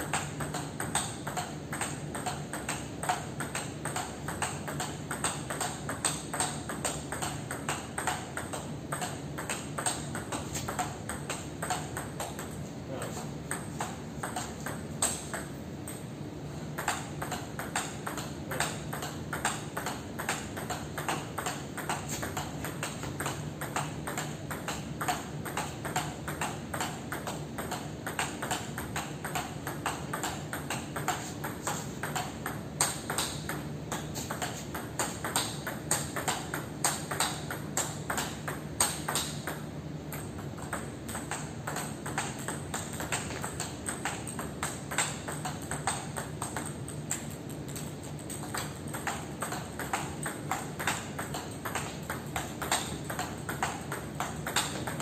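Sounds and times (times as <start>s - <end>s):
ball bouncing on table: 0.0s - 16.0s, 16.8s - 55.0s
table tennis ball hitting paddles: 0.0s - 55.0s.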